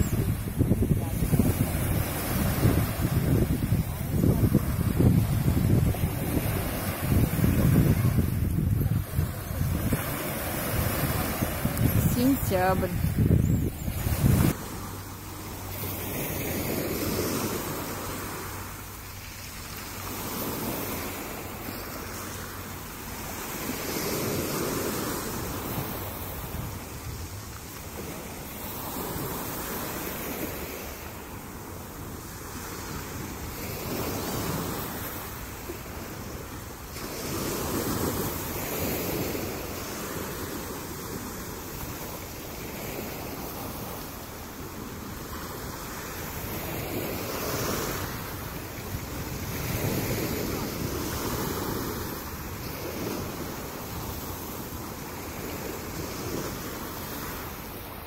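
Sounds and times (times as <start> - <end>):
waves washing up a pebble beach: 0.0 - 13.3.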